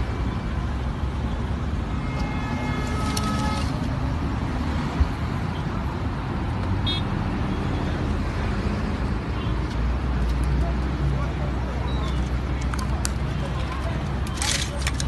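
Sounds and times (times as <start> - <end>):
road traffic rumble: 0.0 - 15.0
car horn: 1.8 - 3.9, 6.8 - 7.9.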